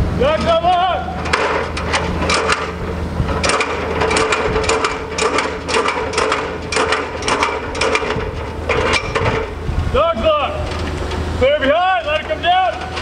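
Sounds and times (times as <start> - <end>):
extension ladder clicking and clacking: 0.4 - 9.6, 11.9 - 13.0.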